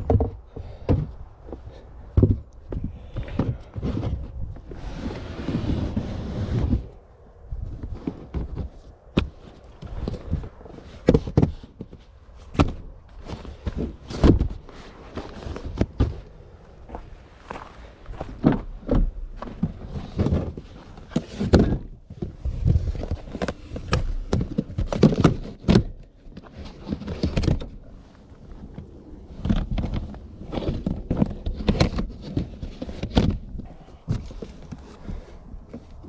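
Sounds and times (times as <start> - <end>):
knocks and thumps: 0.0 - 4.7
rustling: 0.0 - 36.0.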